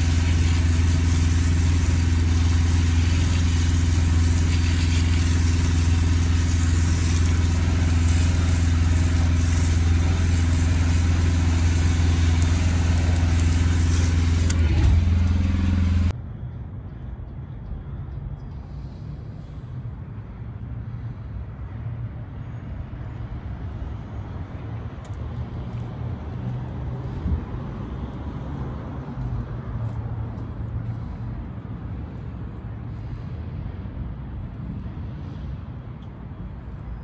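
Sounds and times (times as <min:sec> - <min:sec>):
motor humming: 0:00.0 - 0:16.1
outdoor background noise: 0:00.0 - 0:37.0.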